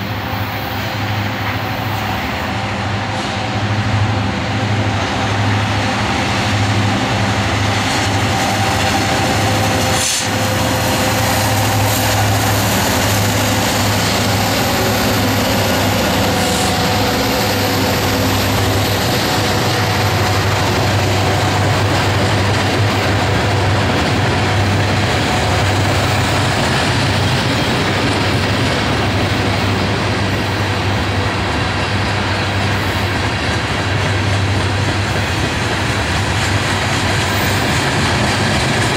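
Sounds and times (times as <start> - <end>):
locomotive engine drone: 0.0 - 38.9
train wheels clattering on rails: 0.0 - 38.9.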